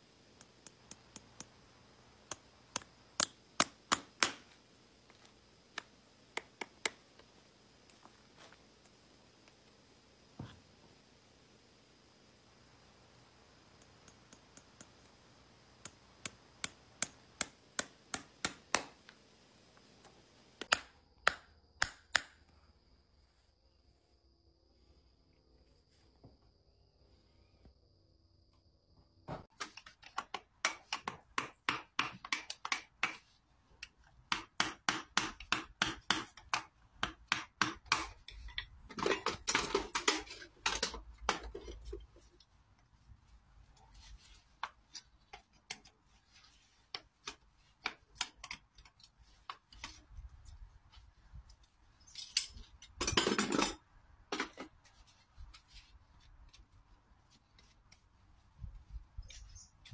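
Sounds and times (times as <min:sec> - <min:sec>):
hammer tapping nails: 0:30.2 - 0:33.2.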